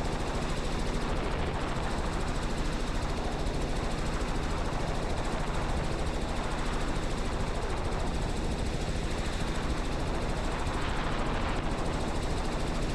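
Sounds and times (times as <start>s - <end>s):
helicopter engine and rotor drone: 0.0s - 12.9s.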